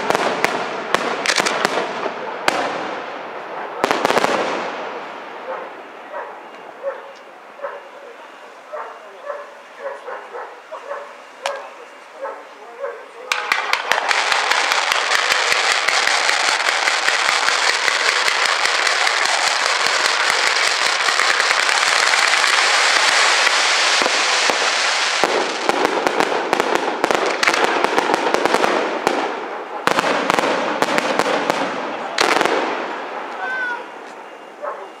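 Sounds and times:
fireworks crackling and banging: 0.0 - 8.7, 9.6 - 12.2, 13.1 - 35.0.

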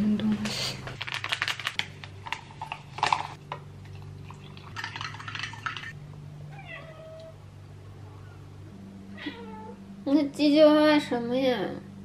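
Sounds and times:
plastic sachet tearing and crinkling: 0.9 - 3.4.

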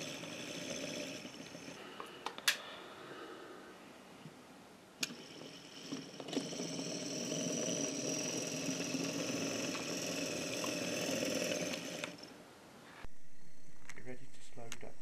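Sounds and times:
model locomotive motor whir: 0.0 - 1.8, 5.0 - 12.4
small wheels rolling on rails: 0.0 - 1.8, 5.0 - 12.4.

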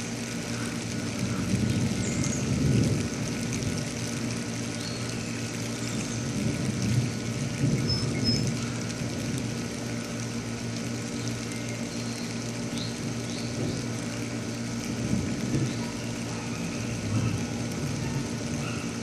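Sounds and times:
low rumble with faint hum: 0.0 - 19.0.

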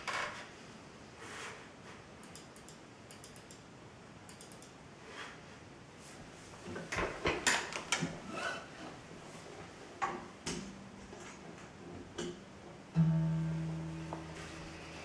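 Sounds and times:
guitar strings ringing: 12.3 - 15.0.

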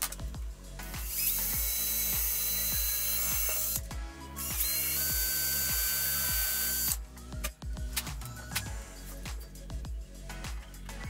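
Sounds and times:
cordless drill whining into wood: 1.0 - 7.0.

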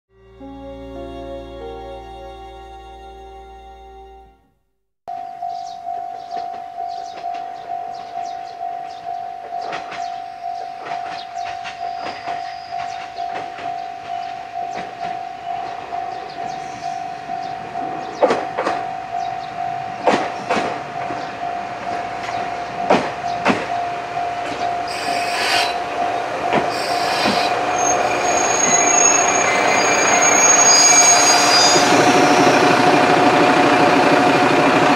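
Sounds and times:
level crossing alarm ringing: 5.1 - 34.9
diesel engine running: 31.4 - 34.9.

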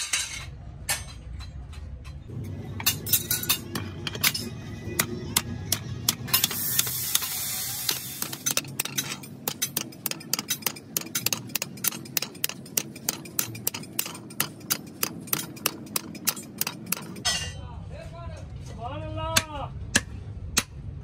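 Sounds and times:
hammer striking sheet metal: 7.9 - 17.6.

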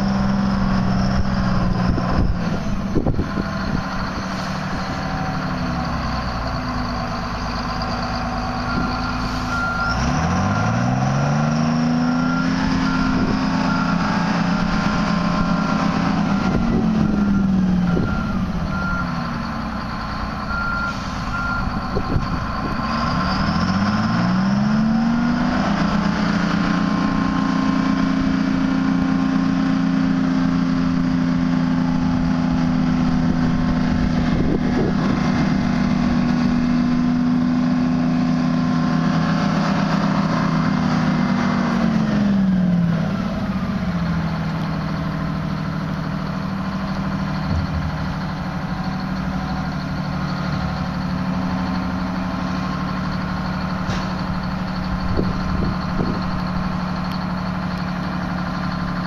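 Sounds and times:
diesel truck engine revving: 0.0 - 59.0
backup alarm beeping: 15.5 - 22.9, 43.0 - 57.5.

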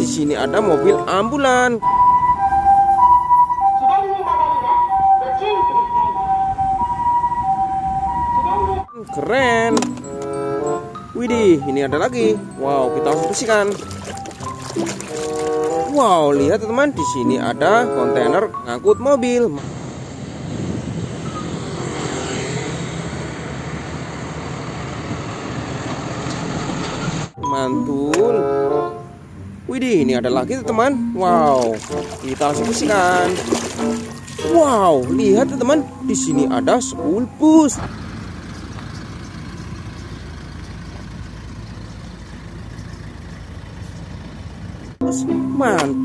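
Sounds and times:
bus engine humming: 0.0 - 46.0
road noise: 0.0 - 46.0
diesel truck driving past: 19.5 - 27.5, 30.6 - 45.8
passing motor scooters: 19.6 - 27.4, 37.0 - 44.8.

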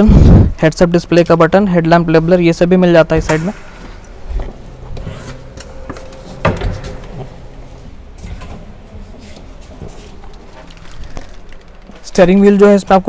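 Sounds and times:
low steady hum: 0.3 - 13.0.

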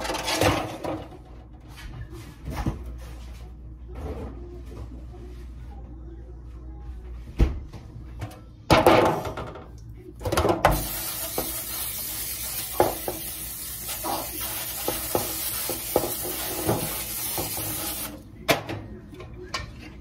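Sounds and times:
cooking spray hissing: 10.7 - 18.2.

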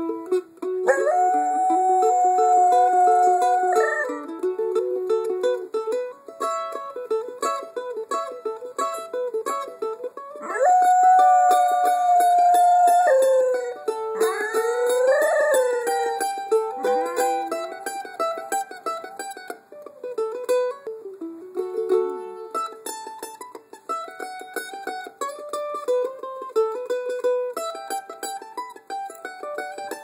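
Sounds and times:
mandolin fast picking: 0.0 - 30.0
dog howl: 0.9 - 4.2, 10.4 - 17.6.

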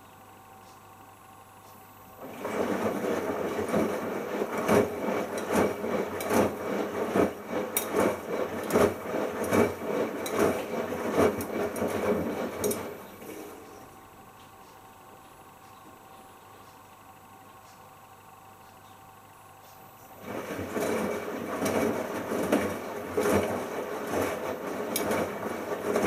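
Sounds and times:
washing machine drum tumbling: 2.2 - 13.6, 20.2 - 26.0.

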